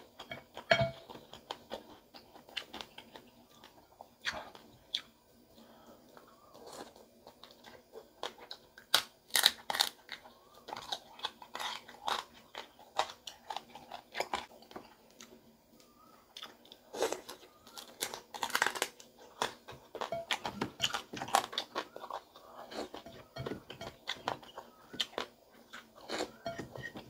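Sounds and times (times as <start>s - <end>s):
crunchy chewing: 0.0s - 27.0s.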